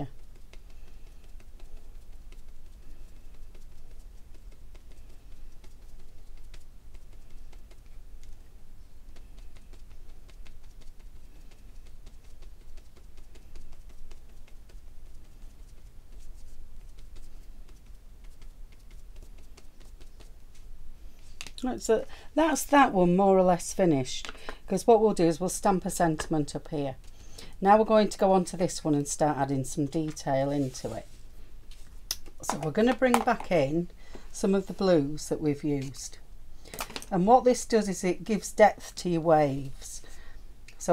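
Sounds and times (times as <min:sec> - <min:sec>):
brush tapping on card: 0:00.0 - 0:20.7, 0:31.7 - 0:33.7
low steady hum: 0:00.0 - 0:40.9.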